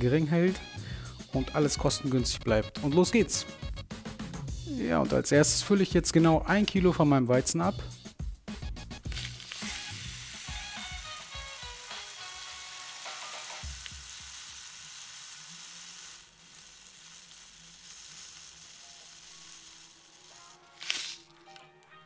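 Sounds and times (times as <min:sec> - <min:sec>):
grain pouring into plastic bowl: 0:09.1 - 0:21.6.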